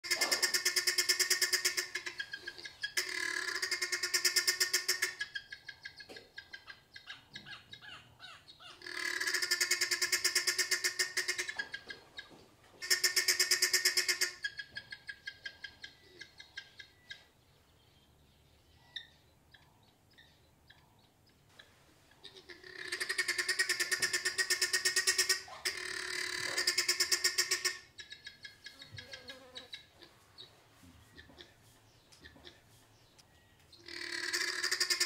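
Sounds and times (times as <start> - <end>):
guineafowl alarm cackling: 0.0 - 17.4, 18.8 - 35.0.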